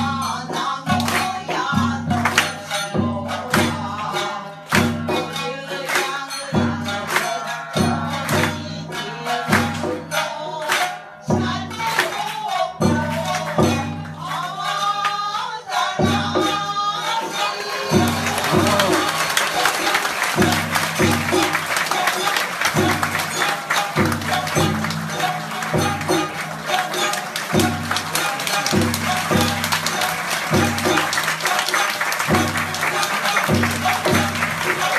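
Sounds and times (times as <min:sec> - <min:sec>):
plucked shamisen: 0:00.0 - 0:34.9
person singing: 0:11.3 - 0:34.9
sharp struck beats: 0:16.0 - 0:34.9.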